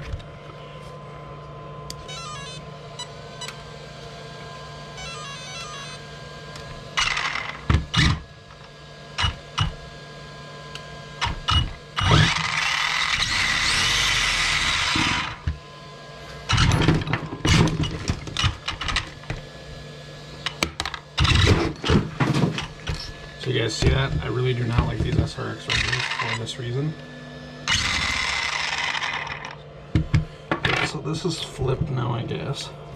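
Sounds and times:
electric motor whirring: 4.9 - 9.8, 10.7 - 15.6, 22.8 - 29.6.

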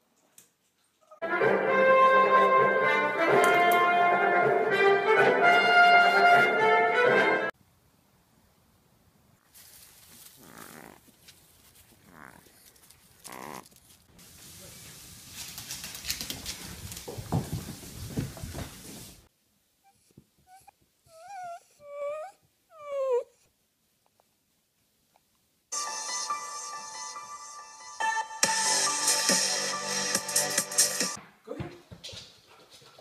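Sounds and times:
rustling noise: 9.4 - 19.3
dog whining: 19.8 - 23.5.

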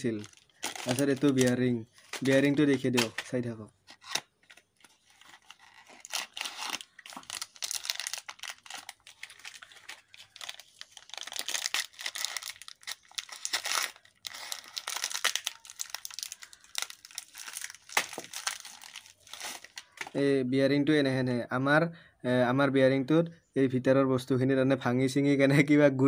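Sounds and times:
plastic wrapping crinkling and tearing: 0.0 - 20.2.

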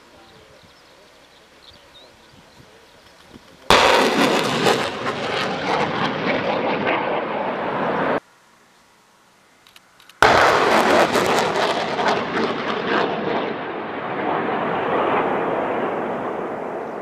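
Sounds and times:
explosive blast: 3.7 - 8.2, 10.2 - 17.0.

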